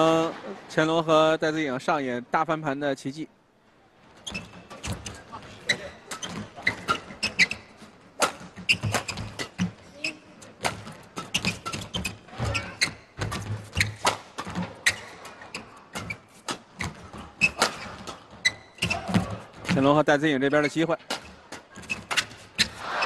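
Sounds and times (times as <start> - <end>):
racket hitting shuttlecock: 5.8 - 9.8, 10.6 - 19.8
crowd voices: 22.8 - 23.0.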